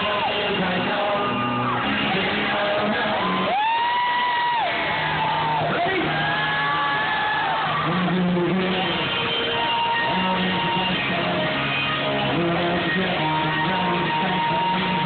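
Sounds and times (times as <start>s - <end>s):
man singing long notes: 0.0s - 4.3s, 7.7s - 15.0s
crowd shouting: 0.0s - 10.2s
electric guitar: 0.0s - 15.0s.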